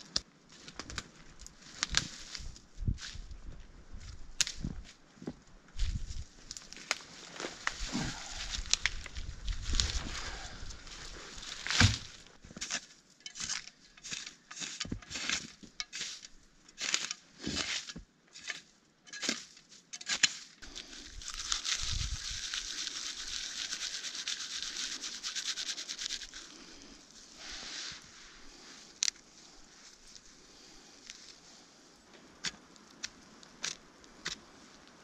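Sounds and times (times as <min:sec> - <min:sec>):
shovel scraping snow: 0:11.0 - 0:19.5, 0:27.3 - 0:28.8
hands rubbing together: 0:21.3 - 0:28.3.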